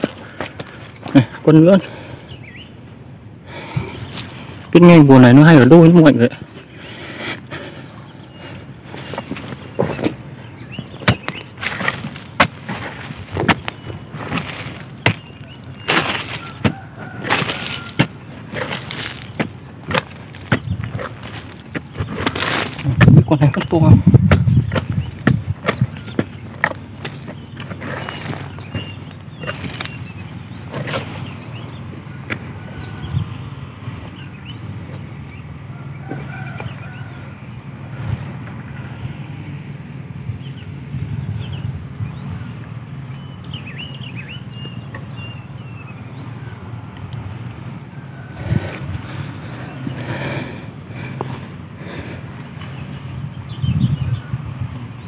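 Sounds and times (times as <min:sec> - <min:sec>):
digging into dry soil: 0:00.0 - 0:02.2, 0:03.5 - 0:38.6, 0:44.6 - 0:53.1
dry grass rustling: 0:02.5 - 0:38.7, 0:43.6 - 0:53.4
steady low rumble: 0:06.4 - 0:43.3.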